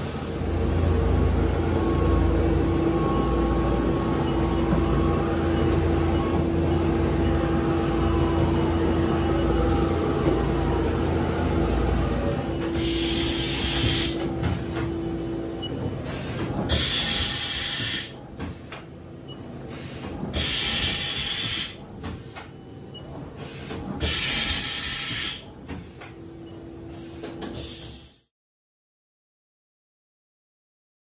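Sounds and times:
low machine-shop rumble: 0:00.0 - 0:28.3
loud hissing bursts: 0:12.8 - 0:14.2.

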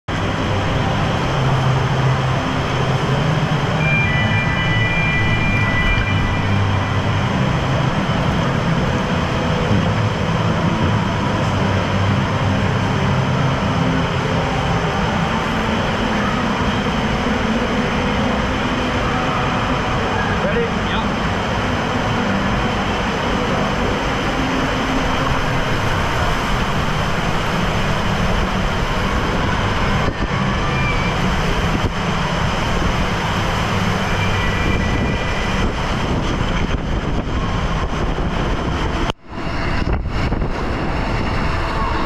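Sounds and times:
running water: 0:00.1 - 0:38.8
machinery noise: 0:00.1 - 0:42.0
brief high tone: 0:03.2 - 0:07.8, 0:29.8 - 0:31.5.

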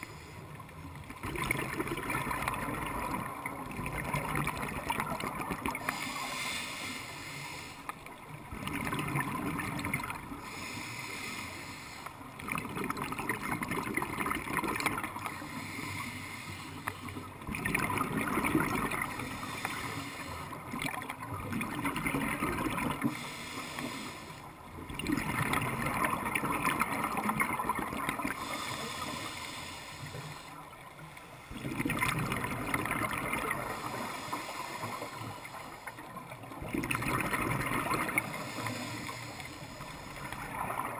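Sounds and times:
exhaled bubbles gurgling: 0:00.0 - 0:11.3, 0:12.2 - 0:16.2, 0:16.8 - 0:40.9
regulator inhalation hiss: 0:05.8 - 0:07.9, 0:10.4 - 0:12.2, 0:15.3 - 0:17.2, 0:19.2 - 0:20.6, 0:23.1 - 0:24.4, 0:28.4 - 0:30.6, 0:33.7 - 0:36.0, 0:38.2 - 0:40.4.

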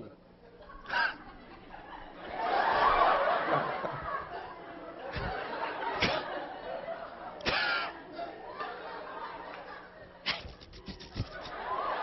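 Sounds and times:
audience laughing and murmuring: 0:00.4 - 0:12.0.

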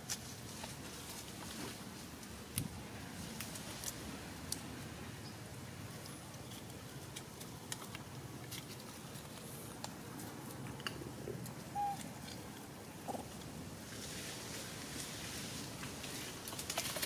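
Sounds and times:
dry leaves rustling: 0:00.0 - 0:04.9, 0:13.7 - 0:17.0
monkey squeak: 0:11.8 - 0:12.0.

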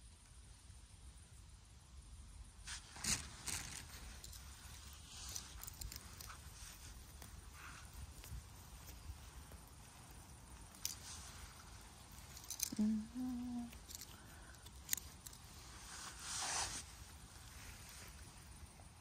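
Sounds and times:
hand rustling through moss: 0:02.7 - 0:19.0
light clicks and snaps: 0:03.5 - 0:15.6
person humming: 0:12.4 - 0:14.3.

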